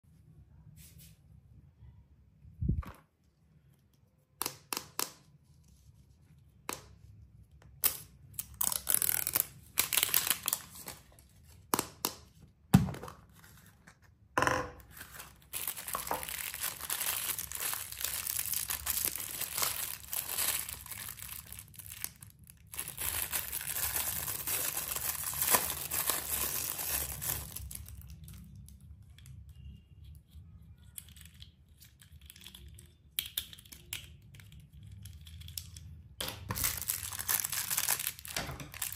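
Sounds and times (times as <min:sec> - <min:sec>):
candy packaging tearing: 0:07.8 - 0:11.2, 0:14.9 - 0:28.8, 0:30.9 - 0:38.9
foil packet crinkling: 0:08.4 - 0:11.2, 0:14.9 - 0:28.5, 0:36.5 - 0:38.9.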